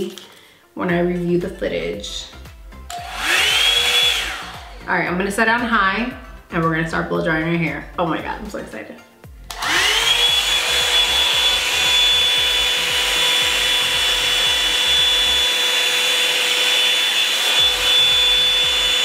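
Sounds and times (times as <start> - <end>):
hair dryer whining: 2.8 - 5.2, 9.4 - 19.0.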